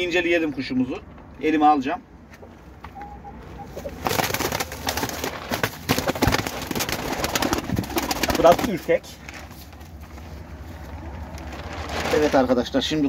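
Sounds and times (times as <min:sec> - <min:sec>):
pigeon wings flapping: 0:03.8 - 0:09.0
scuffling in straw: 0:09.3 - 0:12.6.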